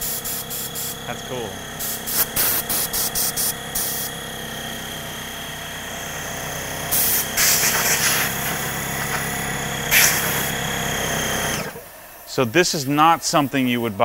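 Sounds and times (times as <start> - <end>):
air hissing from blow gun: 0.0 - 4.2, 6.9 - 10.6, 11.5 - 14.0
air compressor humming: 0.0 - 14.0.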